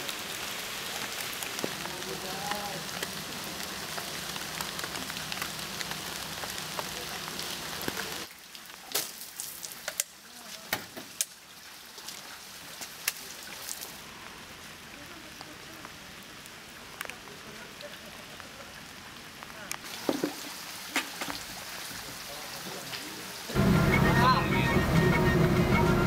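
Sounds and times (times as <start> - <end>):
rain hissing: 0.0 - 26.0
water drips and taps: 1.1 - 3.1, 7.8 - 13.9, 19.7 - 22.1.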